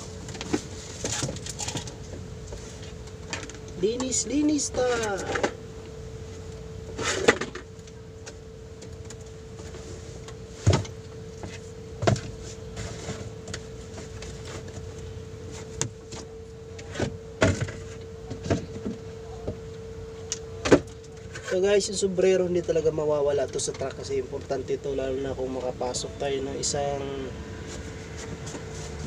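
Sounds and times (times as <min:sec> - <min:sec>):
steady hum: 0:00.0 - 0:29.0.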